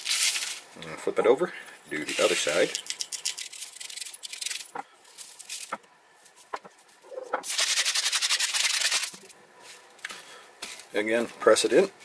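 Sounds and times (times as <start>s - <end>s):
spice shaker rattling: 2.1s - 5.8s, 7.4s - 9.3s.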